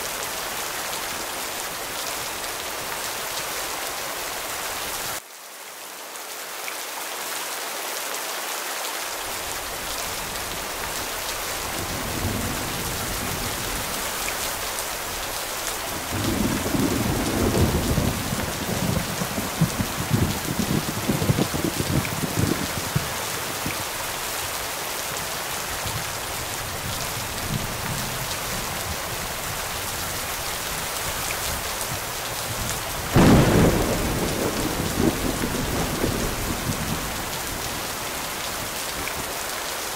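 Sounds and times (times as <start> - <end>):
heavy rain falling: 0.0 - 39.9
thunder rolling: 16.0 - 23.6, 33.1 - 37.8
sudden thunder clap: 33.2 - 36.6.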